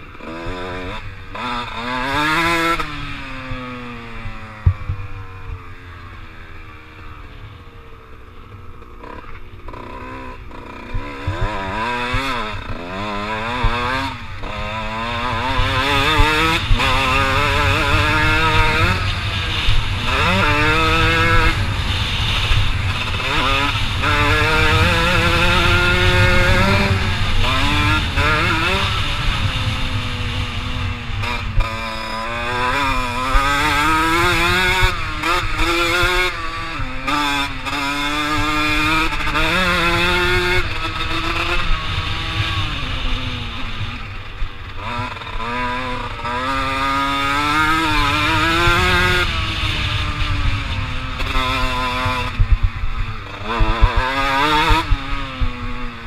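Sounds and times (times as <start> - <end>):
two-stroke engine revving: 0.0 - 56.0
low wind rumble: 13.6 - 37.6, 45.9 - 56.0.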